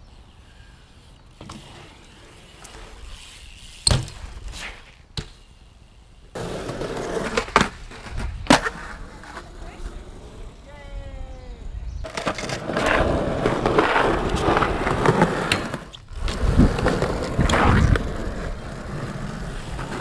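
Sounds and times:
bike wheels rolling on concrete: 0:00.0 - 0:20.0.

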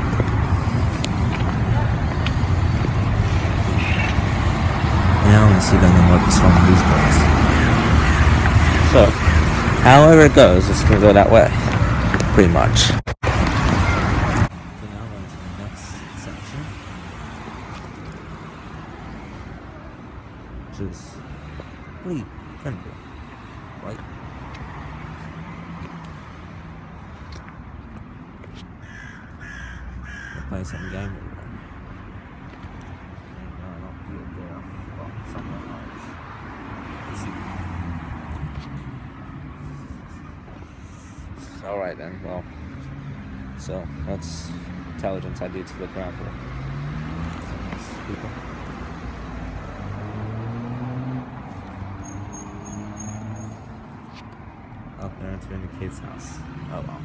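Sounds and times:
road traffic rush: 0:00.0 - 0:57.0
distant vehicle engine hum: 0:20.8 - 0:57.0.

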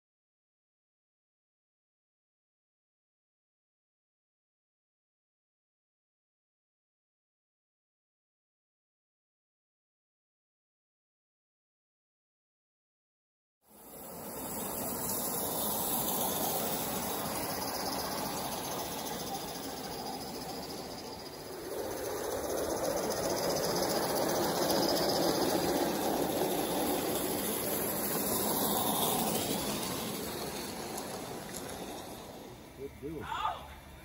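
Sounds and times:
model steam train running past: 0:13.7 - 0:34.0.

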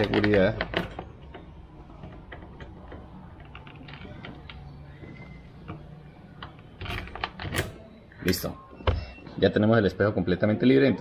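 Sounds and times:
security cable clicking and rattling: 0:00.0 - 0:05.0.

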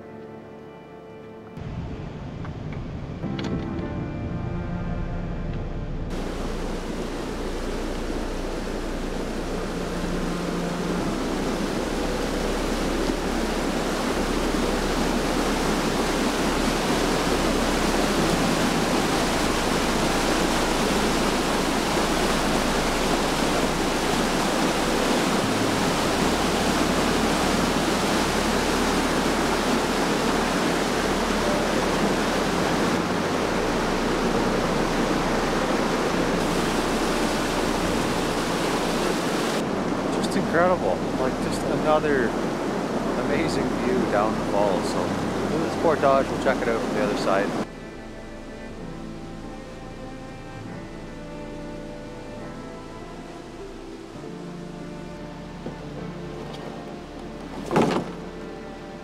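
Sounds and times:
waterfall pouring into a pool: 0:06.1 - 0:47.6.

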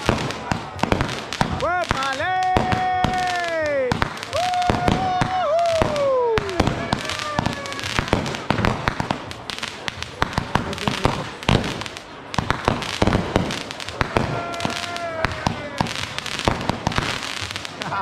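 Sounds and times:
fireworks bangs and crackles: 0:00.0 - 0:18.0
falling firework whistle: 0:03.3 - 0:08.3.

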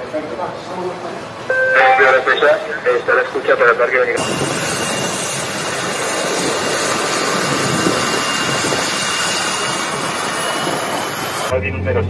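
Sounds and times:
helicopter turbine engine running: 0:04.2 - 0:11.5.

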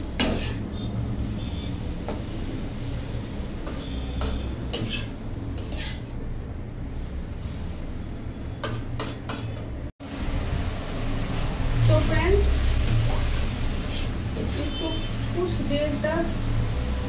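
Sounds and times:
spatula scraping metal pan: 0:00.2 - 0:00.7, 0:03.6 - 0:06.1, 0:12.9 - 0:14.8.

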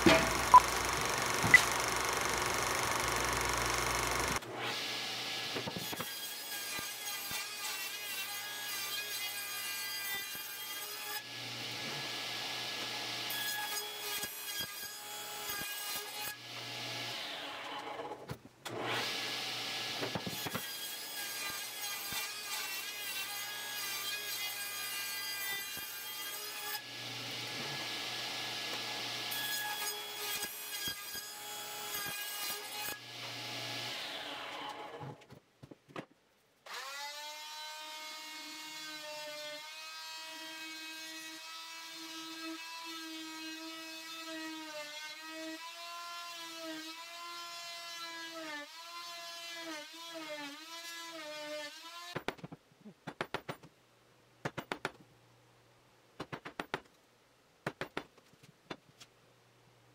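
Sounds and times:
electric drill boring wood: 0:00.0 - 0:05.6
table saw cutting wood: 0:00.0 - 0:18.1, 0:18.7 - 0:35.0.

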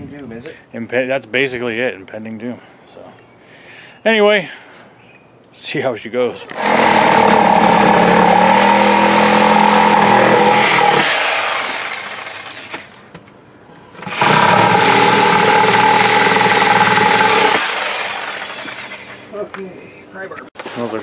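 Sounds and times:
power saw cutting wood: 0:06.5 - 0:12.9, 0:14.0 - 0:19.3.

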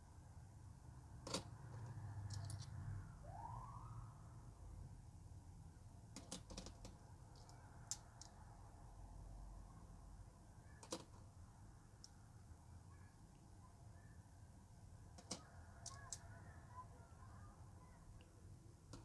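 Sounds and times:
coin set down on table: 0:01.2 - 0:01.5, 0:06.2 - 0:06.9.

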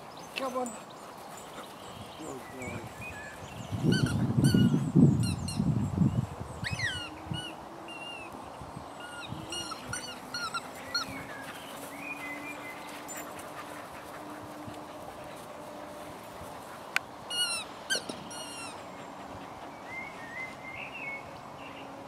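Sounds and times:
dogs yelping and squeaking: 0:03.7 - 0:05.6, 0:06.6 - 0:08.2, 0:09.0 - 0:11.9, 0:17.3 - 0:19.2.

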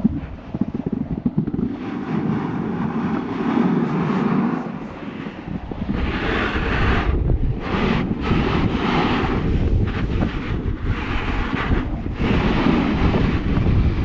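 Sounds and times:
snowboard scraping over snow: 0:00.0 - 0:14.0
wind buffeting microphone: 0:00.0 - 0:14.0.

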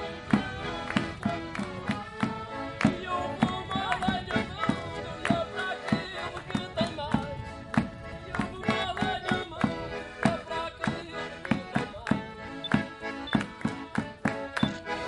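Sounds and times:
accordion folk tune: 0:00.0 - 0:15.0
people clapping along: 0:00.0 - 0:15.0
bass drum beat: 0:11.7 - 0:14.8.

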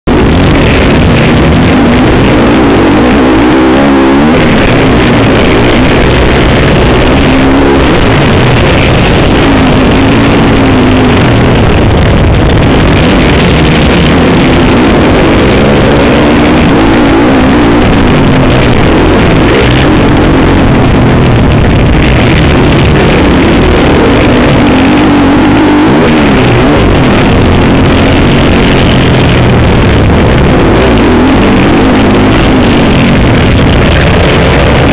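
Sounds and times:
motocross bike engine revving: 0:00.0 - 0:34.9
rushing wind: 0:00.0 - 0:34.9.

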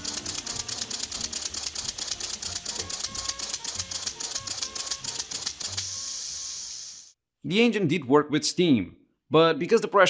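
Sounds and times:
model steam engine chuffing: 0:00.0 - 0:07.1.

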